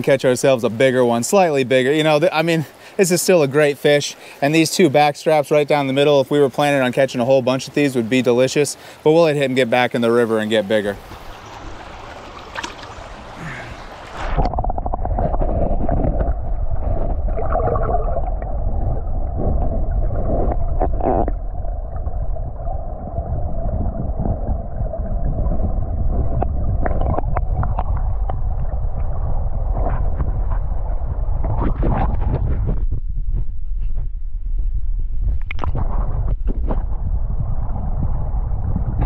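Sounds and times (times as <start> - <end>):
stream flowing: 0.0 - 29.6
muffled underwater river rushing: 0.0 - 39.0.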